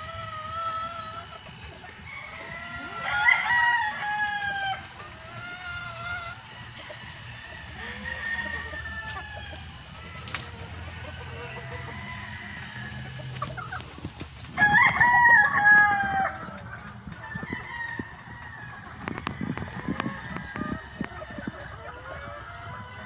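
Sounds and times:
hens clucking softly: 0.0 - 14.6, 15.2 - 23.0
rooster crowing: 2.0 - 4.8, 5.6 - 13.4, 14.6 - 16.6.

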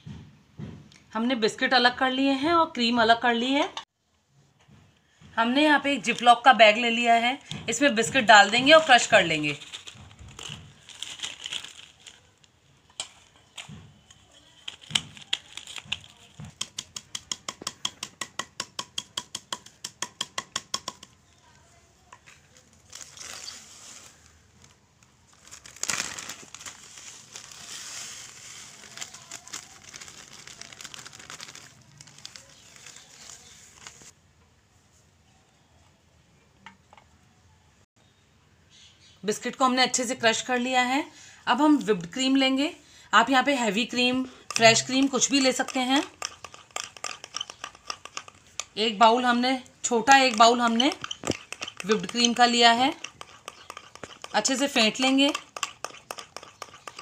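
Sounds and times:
plastic bag crinkling: 8.4 - 16.5, 22.4 - 34.2.

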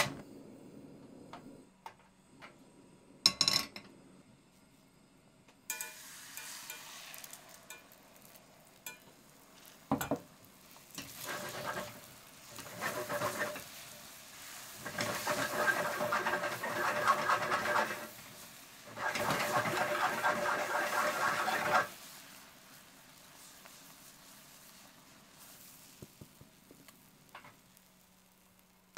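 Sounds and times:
spatula scraping a pan: 5.7 - 10.1, 10.9 - 22.2
eggs sizzling in hot oil: 5.7 - 28.9.

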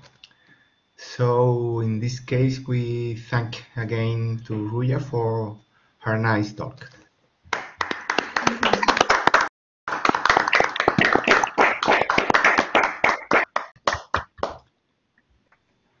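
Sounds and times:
people clapping: 7.5 - 14.6.

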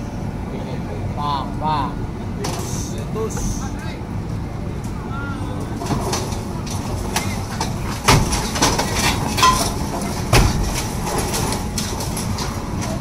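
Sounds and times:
steady background noise: 0.0 - 13.0
metal clanks and knocks: 5.8 - 13.0.

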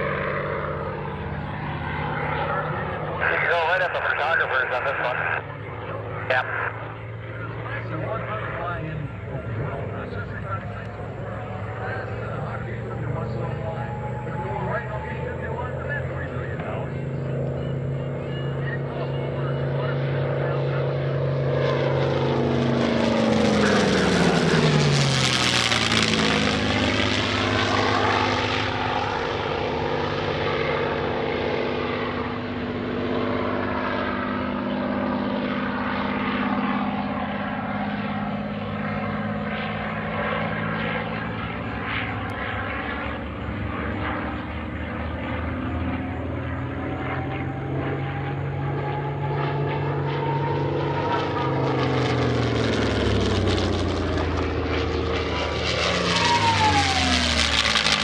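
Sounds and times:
propeller planes droning overhead: 0.0 - 58.0.

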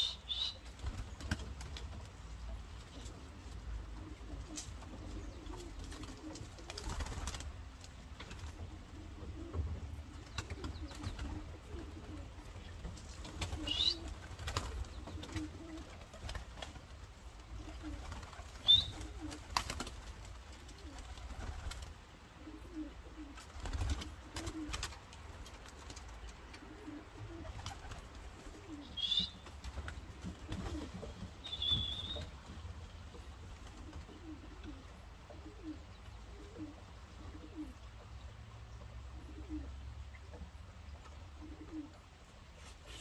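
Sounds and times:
pigeons cooing: 3.6 - 7.4, 8.3 - 16.4, 17.4 - 19.6, 20.6 - 24.9, 26.4 - 32.4, 33.0 - 38.2, 38.8 - 40.4, 41.2 - 43.0.

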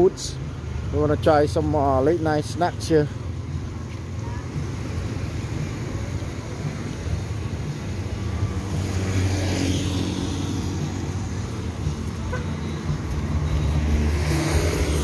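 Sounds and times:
traffic engine rumble: 0.0 - 15.0.

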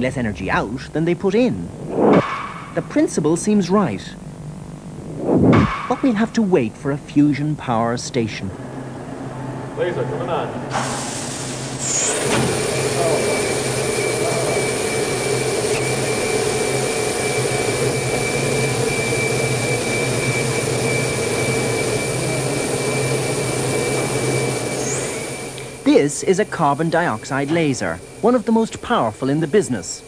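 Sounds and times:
low hum: 0.5 - 6.9
laser hissing with high whine: 10.8 - 30.0.

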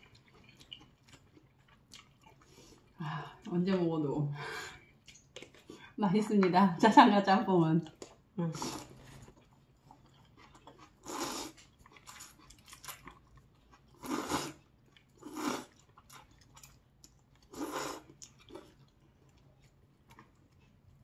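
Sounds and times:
chewing and lip-smacking: 0.0 - 3.0, 4.9 - 6.0, 7.8 - 21.0
person slurping noodles: 11.0 - 11.6, 14.0 - 14.6, 15.2 - 15.8, 17.5 - 18.1.

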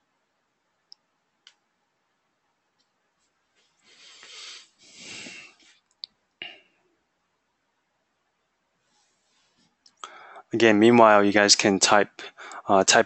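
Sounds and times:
person breathing close to microphone: 3.8 - 5.7, 10.0 - 10.5, 12.2 - 12.7.

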